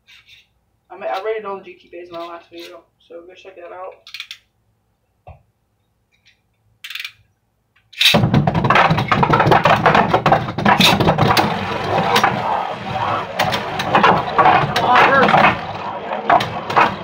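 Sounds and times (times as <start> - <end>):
tops scraping on plastic: 8.1 - 17.0.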